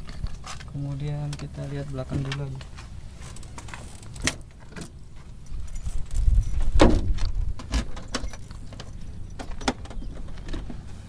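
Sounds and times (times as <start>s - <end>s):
wind rumble on microphone: 5.3s - 11.0s.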